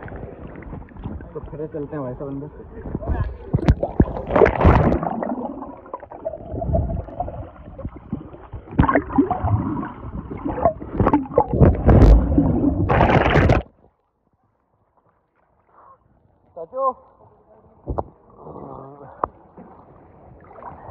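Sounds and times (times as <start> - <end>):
muffled underwater bubbling: 2.9 - 13.6.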